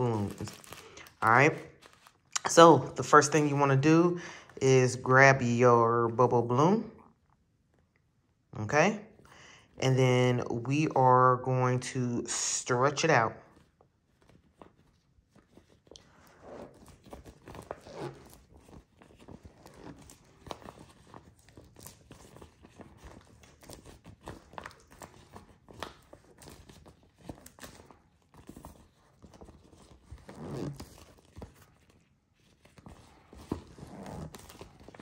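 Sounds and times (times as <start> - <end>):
plastic balloon crinkling: 0.0 - 5.0, 13.4 - 35.0.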